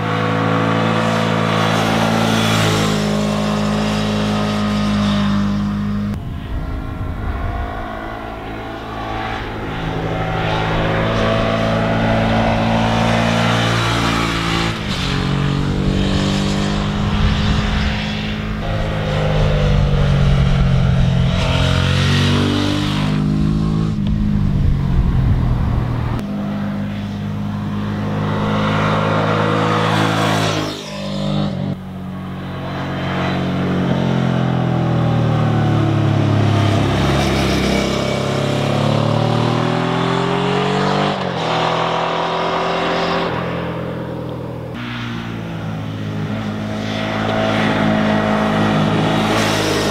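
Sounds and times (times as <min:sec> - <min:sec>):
motorcycle riding past: 0:00.0 - 0:49.9.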